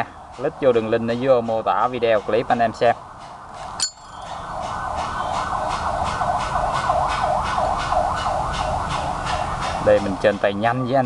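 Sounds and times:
wailing siren tone: 3.8 - 9.4.

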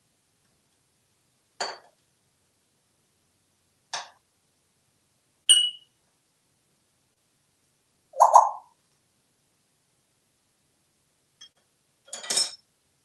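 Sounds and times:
wrench clinking on countertop: 11.4 - 12.6.

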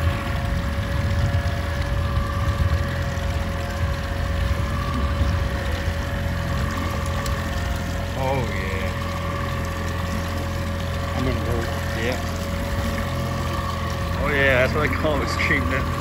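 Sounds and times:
boat motor humming: 0.0 - 16.0.

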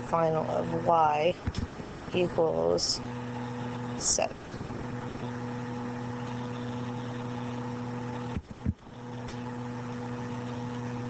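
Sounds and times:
low hum with hiss: 0.0 - 11.0.

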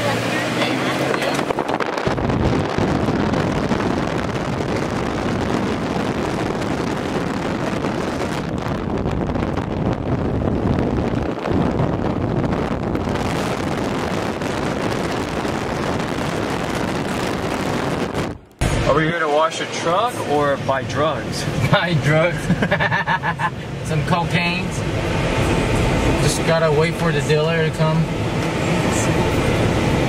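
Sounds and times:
tyres rushing on road: 0.0 - 12.1, 18.5 - 30.0
wind buffeting microphone: 0.1 - 19.2, 24.7 - 27.0.

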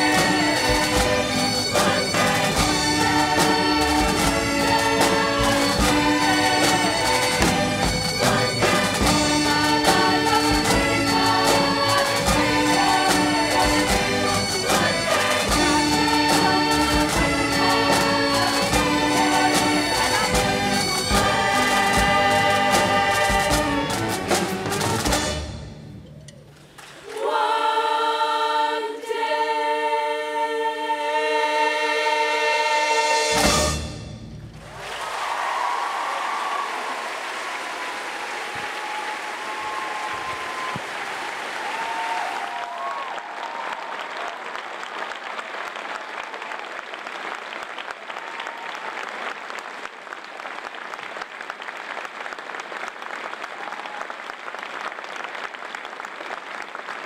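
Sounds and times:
girls' choir holding a chord: 27.1 - 32.9
audience applauding: 34.6 - 57.0.

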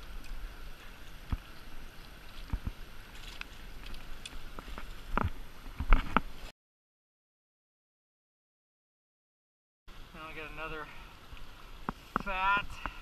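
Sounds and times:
running river water: 0.0 - 6.5, 9.9 - 13.0.

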